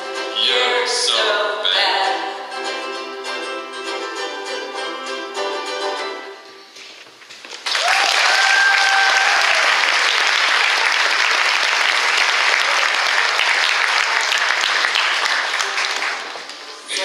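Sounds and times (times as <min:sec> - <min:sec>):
ukulele chord ringing: 0:00.0 - 0:06.7
audience applause: 0:07.6 - 0:17.0
long held cheer: 0:07.7 - 0:15.1.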